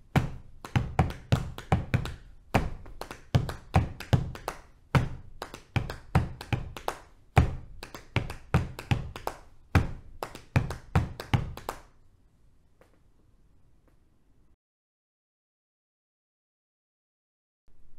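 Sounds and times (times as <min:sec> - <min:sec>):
hands slapping thighs: 0:00.1 - 0:11.9.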